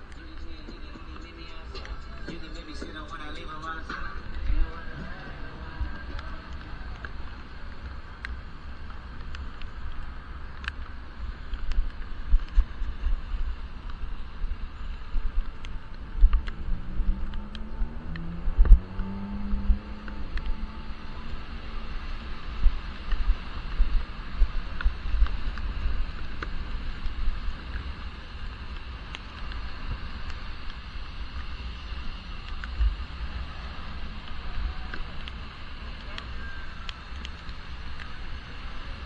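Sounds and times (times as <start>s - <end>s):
passing vehicle engine hum: 0.0s - 11.2s, 13.3s - 26.9s
wind buffeting camera: 0.0s - 20.6s, 21.7s - 39.0s
bicycle tyres hissing on wet road: 0.0s - 39.0s.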